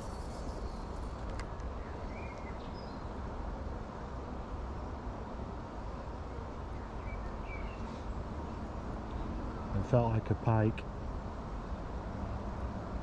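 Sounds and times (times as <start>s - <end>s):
low outdoor rumble: 5.6s - 13.0s.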